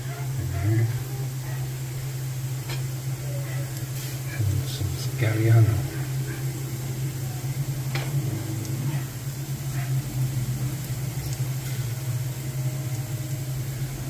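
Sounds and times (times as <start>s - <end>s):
motor humming: 0.0s - 14.0s
light ticks: 11.2s - 11.5s.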